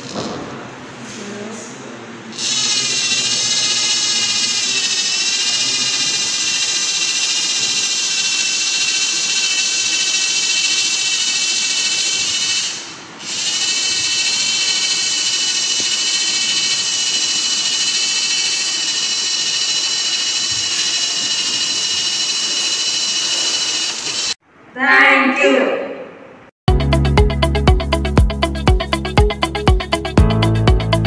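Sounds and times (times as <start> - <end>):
high electric whine: 2.4 - 24.4.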